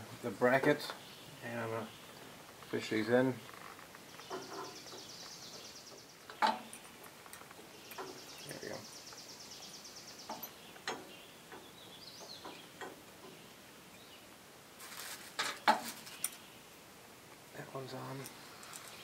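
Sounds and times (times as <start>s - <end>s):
light metal clicks and knocks: 3.6s - 8.3s, 10.2s - 13.4s.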